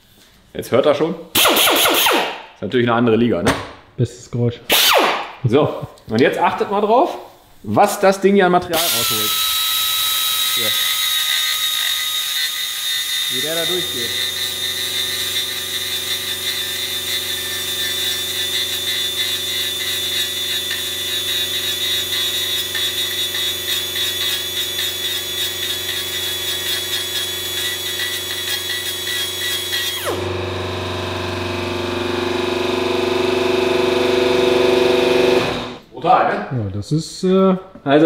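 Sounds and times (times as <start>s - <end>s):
air die grinder whining: 8.7s - 35.8s.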